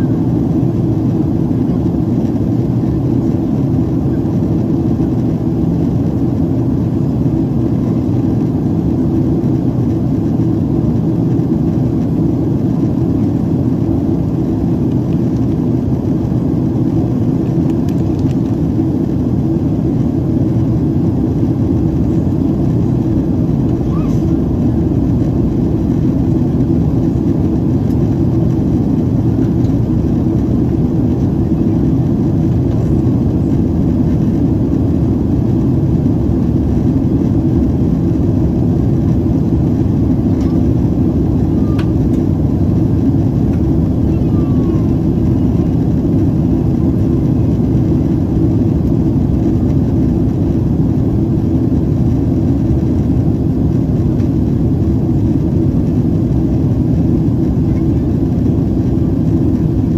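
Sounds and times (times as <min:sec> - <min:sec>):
jet engines low rumble: 0:00.0 - 0:59.9.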